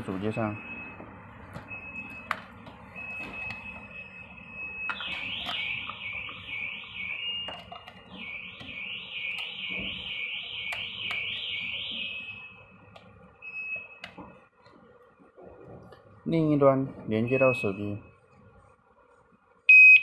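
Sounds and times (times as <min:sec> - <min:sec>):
electronic alarm siren: 0:00.3 - 0:14.0, 0:17.2 - 0:18.2, 0:19.7 - 0:20.0.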